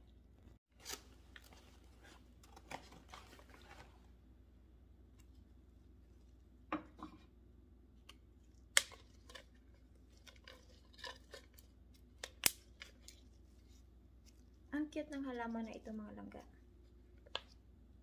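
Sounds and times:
gloved hands handling plant and soil: 0.7s - 4.3s.

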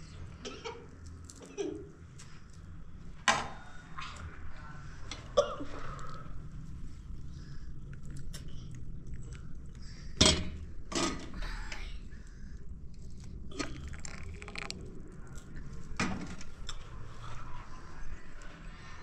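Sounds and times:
tea pouring into glass cup: 13.5s - 14.9s.

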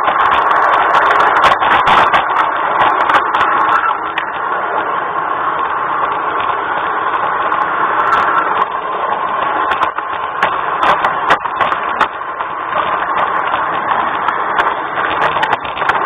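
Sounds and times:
wheels clicking over track: 0.0s - 16.0s.

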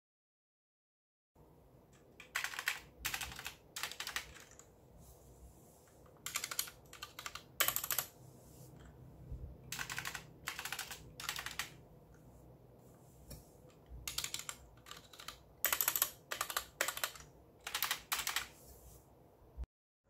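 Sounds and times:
mechanical keyboard typing: 2.0s - 4.7s, 6.1s - 8.1s, 9.7s - 11.8s, 14.0s - 18.6s.

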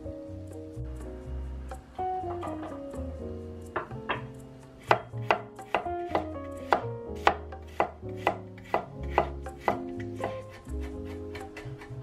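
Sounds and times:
cleaver chopping on wooden board: 3.8s - 11.8s.

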